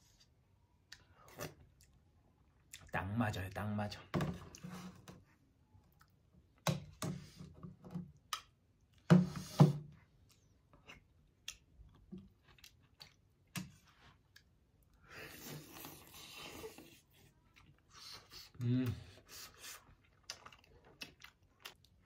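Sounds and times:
chewing: 10.1s - 22.0s.

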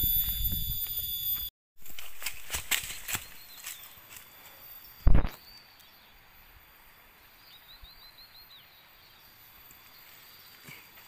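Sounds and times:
faint steady high tone: 0.0s - 1.5s
quiet forest ambience: 1.8s - 11.0s.

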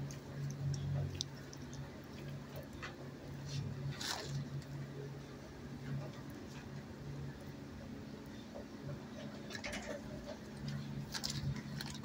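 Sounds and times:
small clicks and ticks: 0.0s - 3.0s.

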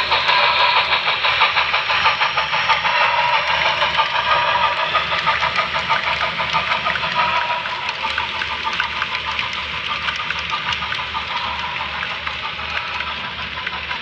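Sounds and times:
model train wheels clicking: 0.0s - 14.0s.

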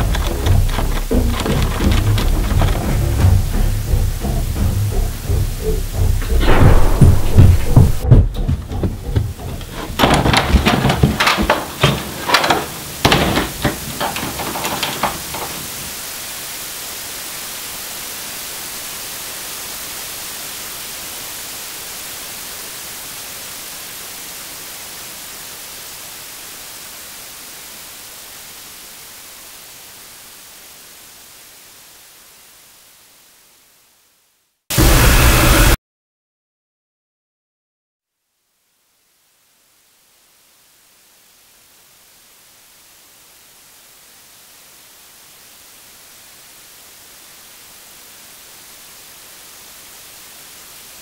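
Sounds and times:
loud bursts of noise: 0.0s - 16.8s, 34.7s - 35.8s
static hiss: 0.0s - 35.8s, 38.0s - 51.0s.

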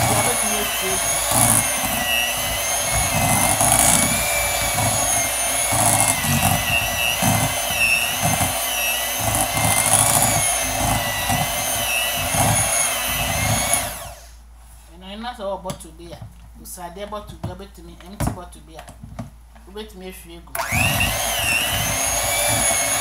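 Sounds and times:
beaters churning thick mixture: 0.0s - 14.2s, 20.6s - 23.0s
electric hand mixer whine: 0.0s - 14.4s, 20.6s - 23.0s.

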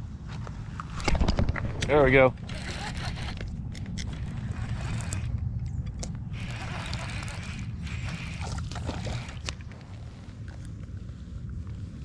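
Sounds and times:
wind rumble on microphone: 0.0s - 12.0s
fishing reel clicks and scrapes: 2.4s - 5.3s, 6.3s - 9.6s.

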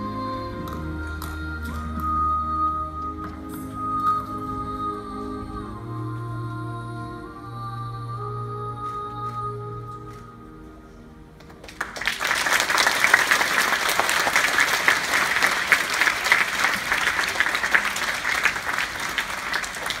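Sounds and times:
audience applauding: 11.4s - 20.0s.

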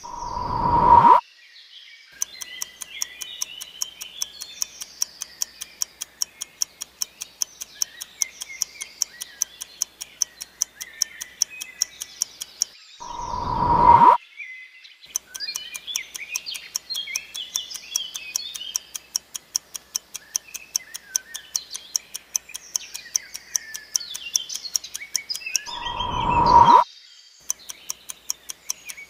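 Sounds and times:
clock ticking: 0.0s - 1.2s, 2.2s - 14.2s, 15.1s - 26.8s, 27.4s - 29.0s
swelling whoosh with ringing tone: 0.0s - 1.2s, 13.0s - 14.2s, 25.7s - 26.8s
birdsong: 0.0s - 29.0s.

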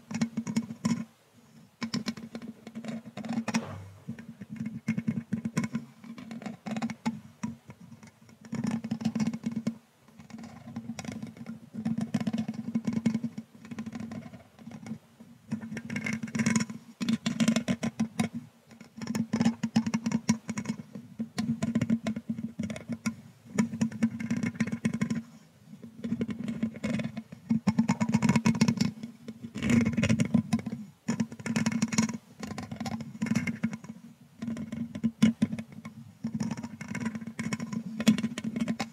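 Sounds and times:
brush stroking microphone grille: 2.0s - 4.5s, 29.6s - 38.9s.

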